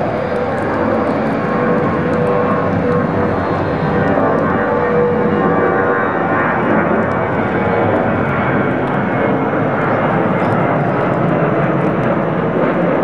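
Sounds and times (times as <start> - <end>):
jet airliner engines roaring: 0.0 - 13.0.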